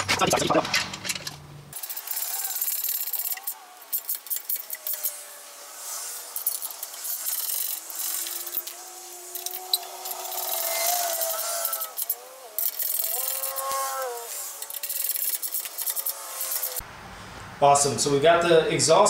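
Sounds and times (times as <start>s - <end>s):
wrench clicking and scraping on metal: 0.7s - 5.2s, 6.4s - 16.8s.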